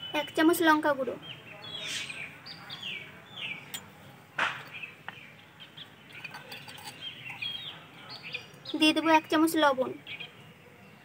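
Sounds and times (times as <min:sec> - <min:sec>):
small birds chirping: 0:00.0 - 0:11.0
metal spoon clink: 0:06.1 - 0:07.6.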